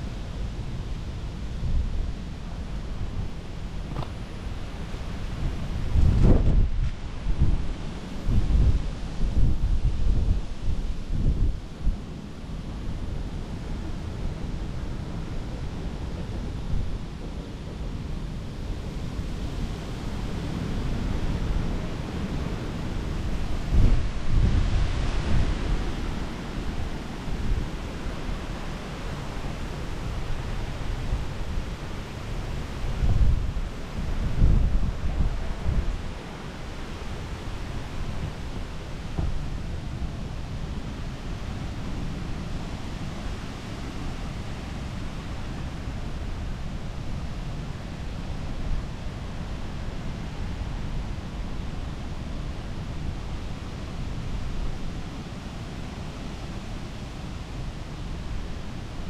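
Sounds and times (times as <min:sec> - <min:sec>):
wind buffeting microphone: 0:00.0 - 0:12.3, 0:18.8 - 0:47.5
strong wind blowing: 0:00.0 - 0:59.0.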